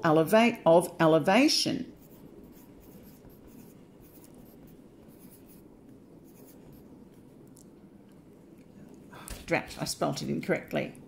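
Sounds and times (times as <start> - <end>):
pencil scratching on paper: 2.0 - 6.9.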